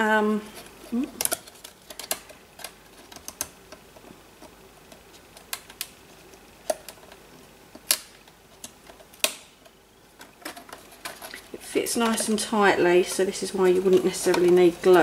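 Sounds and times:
wooden pieces clicking together: 1.2 - 12.4.

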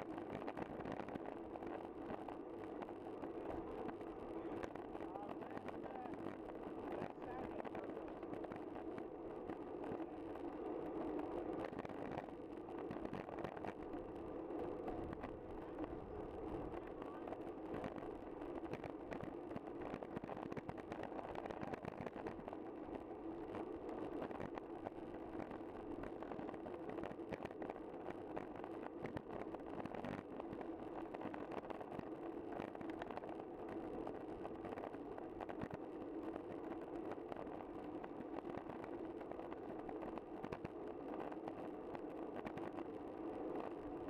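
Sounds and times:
bicycle rolling on road: 0.0 - 44.0
small clicks and rattles: 17.7 - 22.6.

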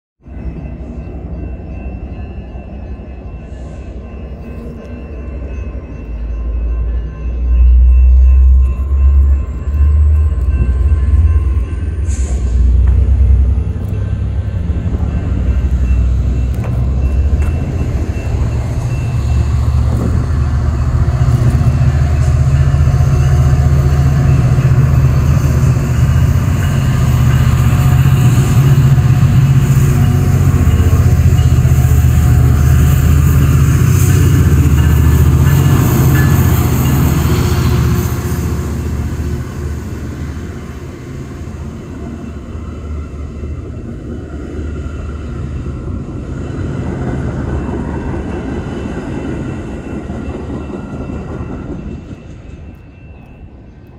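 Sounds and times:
train rumbling past: 0.2 - 53.9.

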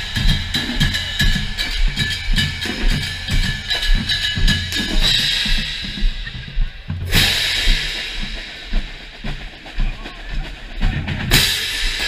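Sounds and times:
crash cymbals ringing: 0.0 - 6.3
bass drums beating: 0.0 - 12.0.

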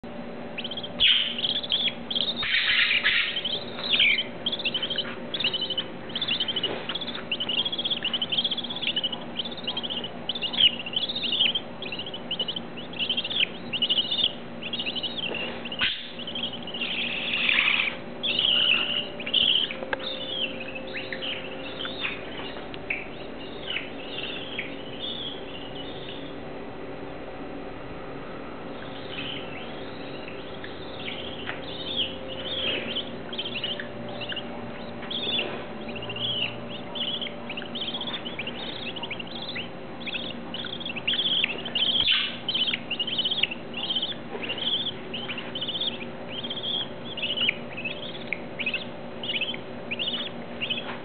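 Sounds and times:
budgerigars chirping: 0.6 - 26.4, 28.8 - 51.0.

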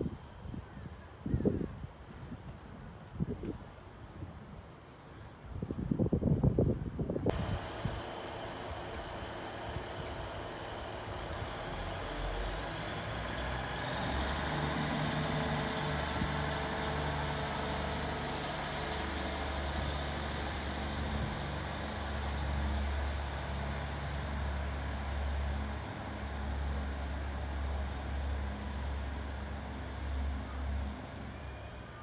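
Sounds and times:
high thin whine: 7.3 - 12.4
diesel engines droning: 7.3 - 32.0.

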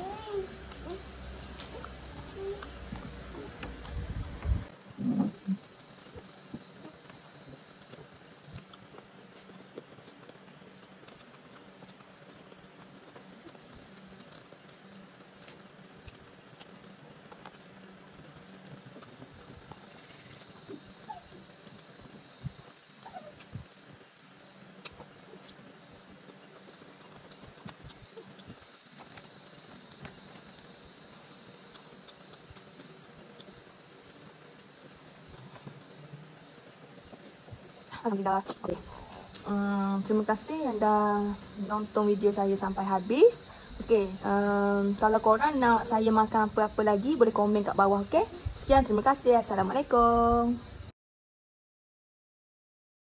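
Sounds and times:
faint hum and hiss: 0.0 - 50.9
chewing: 0.2 - 39.5.

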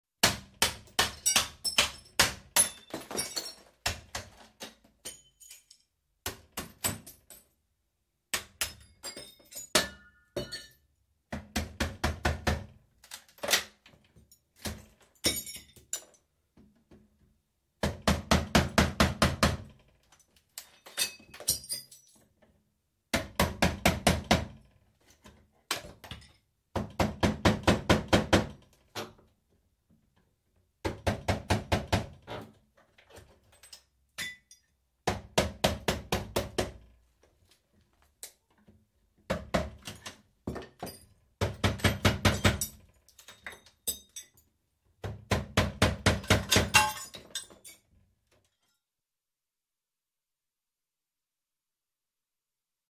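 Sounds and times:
glass clinking and breaking: 0.8 - 6.0, 6.6 - 7.5, 8.5 - 10.9, 14.7 - 16.2, 20.1 - 22.3, 26.0 - 26.4, 33.4 - 34.8, 40.8 - 41.2, 42.3 - 44.5, 46.3 - 48.8.

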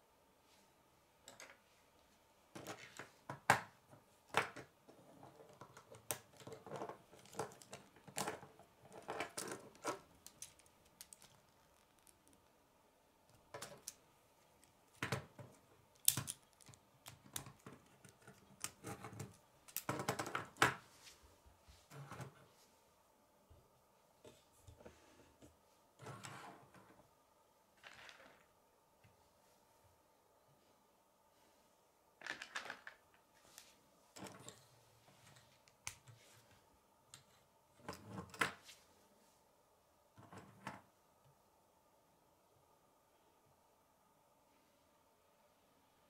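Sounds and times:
plastic pieces clicking together: 9.0 - 12.2, 15.9 - 20.2.

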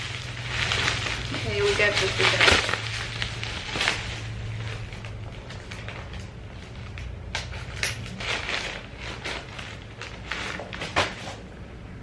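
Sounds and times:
newspaper rustling and tearing: 0.0 - 11.5.

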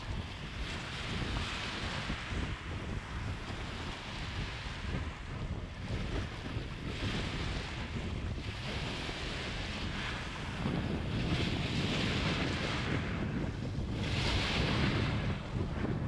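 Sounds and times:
waves washing over pebble beach: 0.0 - 16.0
wind rumbling on microphone: 0.0 - 16.0.

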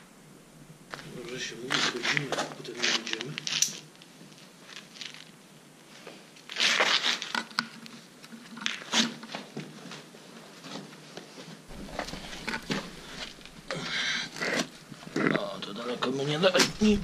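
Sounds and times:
sharp knocks: 11.7 - 14.4
clothing rustling: 11.7 - 15.3, 16.6 - 17.0
shoes crunching on stone rubble: 11.7 - 15.3.

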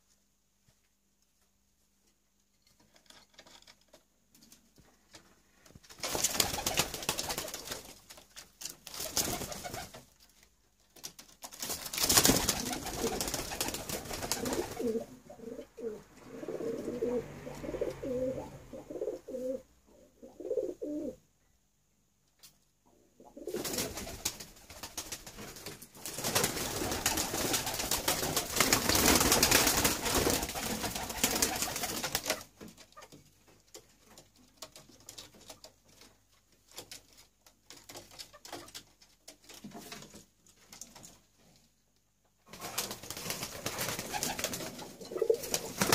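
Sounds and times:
pigeons flapping and scuffling: 4.3 - 15.1, 23.3 - 41.6, 42.4 - 45.9
pigeon cooing: 14.2 - 21.2, 44.9 - 45.8.

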